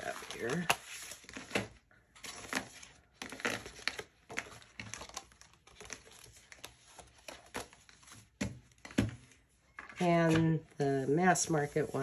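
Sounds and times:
cards sliding and rustling: 0:00.1 - 0:09.4.

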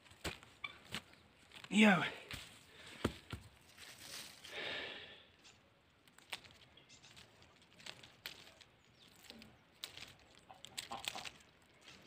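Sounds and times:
rose cane leaves rustling: 0:03.6 - 0:04.8, 0:05.4 - 0:12.0.

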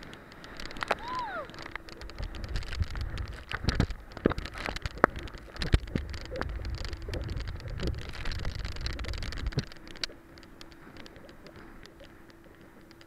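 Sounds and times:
water splashing on camera: 0:00.0 - 0:13.0
wind buffeting microphone: 0:01.0 - 0:10.3.

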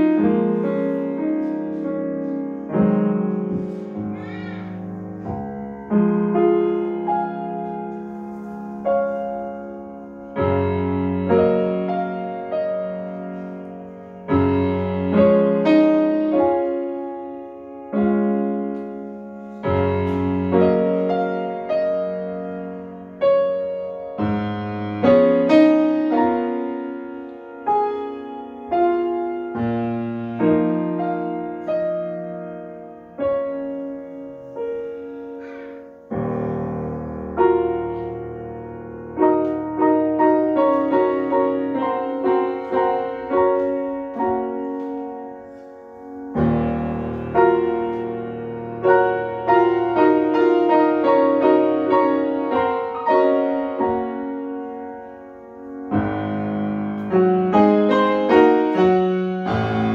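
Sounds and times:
deep bass piano note: 0:00.0 - 0:15.7
grand piano playing: 0:00.0 - 0:59.9.

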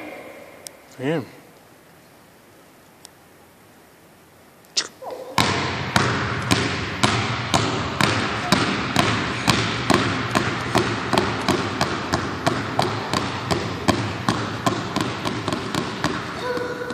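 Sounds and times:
basketballs bouncing on hardwood floor: 0:05.4 - 0:16.9.

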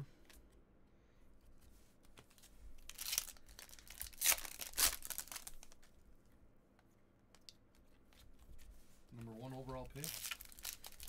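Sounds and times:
foil wrapper crinkling: 0:02.9 - 0:05.8, 0:09.9 - 0:11.0
foil wrapper tearing: 0:02.9 - 0:05.8, 0:10.0 - 0:11.0.

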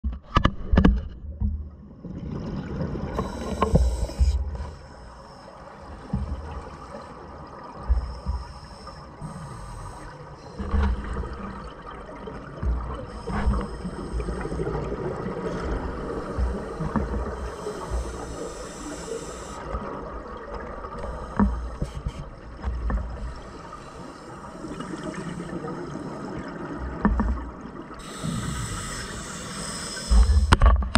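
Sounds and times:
underwater bubbles gurgling: 0:00.6 - 0:30.9
regulator breathing: 0:03.2 - 0:07.2, 0:07.8 - 0:11.3, 0:13.0 - 0:19.8, 0:21.0 - 0:22.3, 0:23.2 - 0:26.4, 0:28.0 - 0:30.6.

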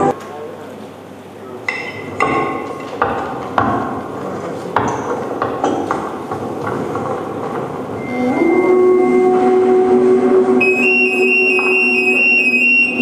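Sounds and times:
steady horn-like tone: 0:08.0 - 0:13.0.

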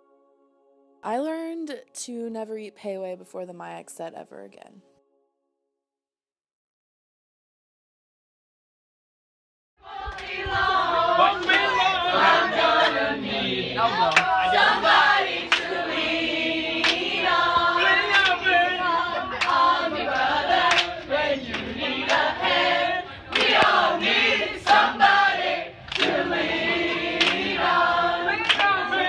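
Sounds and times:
crowd singing in unison: 0:09.8 - 0:29.0.

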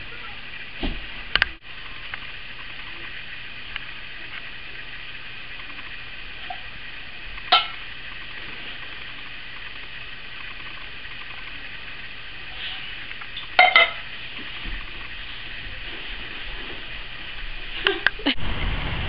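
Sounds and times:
steady hiss: 0:00.0 - 0:19.0
spoon clanging on metal pot: 0:13.6 - 0:14.0
pot clanking on tile floor: 0:13.6 - 0:14.1.

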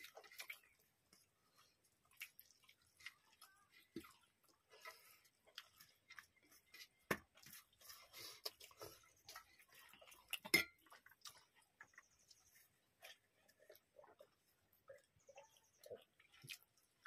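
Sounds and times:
soft chewing: 0:00.0 - 0:17.0.

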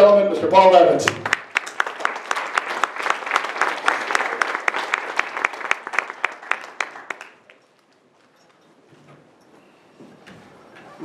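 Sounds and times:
audience applauding: 0:01.0 - 0:07.6.

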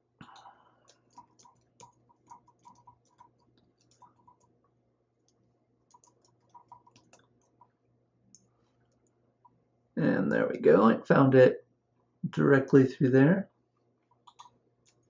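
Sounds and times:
keyboard typing: 0:00.2 - 0:04.6, 0:05.2 - 0:09.1, 0:14.1 - 0:15.0.

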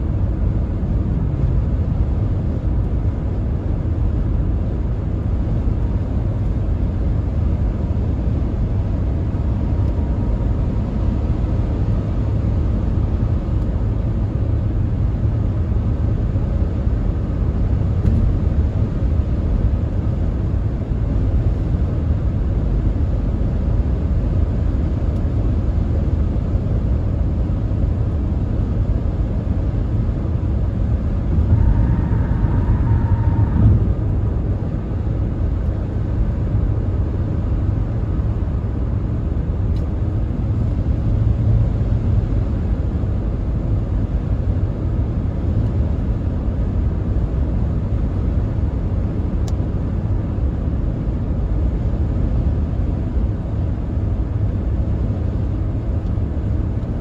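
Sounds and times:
car road and engine rumble: 0:00.0 - 0:57.0
steady high tone: 0:31.3 - 0:34.6.

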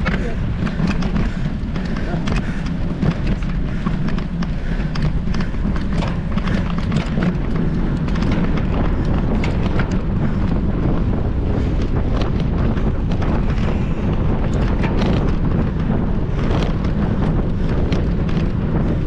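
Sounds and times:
bike clicks and rattles: 0:00.0 - 0:19.0
mountain bike rumble on dirt: 0:00.0 - 0:19.0.

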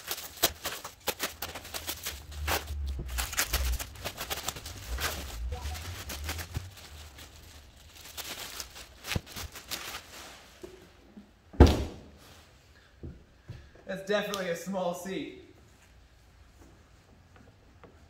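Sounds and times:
bubble wrap crinkling: 0:00.0 - 0:10.6
plastic bag rustling: 0:00.0 - 0:10.6
loud thump: 0:11.6 - 0:12.1.

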